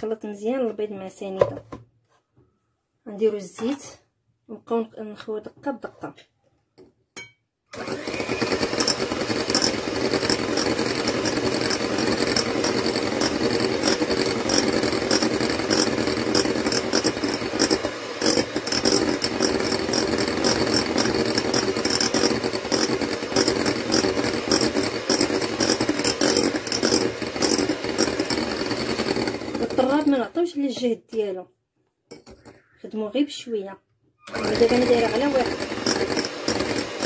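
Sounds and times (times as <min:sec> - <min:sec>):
electric hand mixer running: 0:07.7 - 0:30.3, 0:34.3 - 0:37.0.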